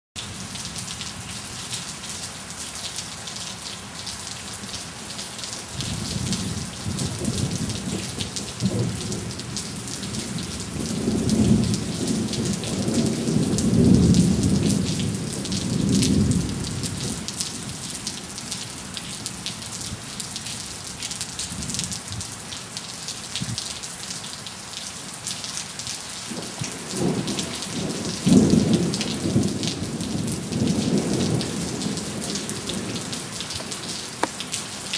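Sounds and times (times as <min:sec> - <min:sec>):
heavy rain: 0:00.2 - 0:34.9
rolling thunder: 0:05.8 - 0:17.2, 0:26.3 - 0:34.0.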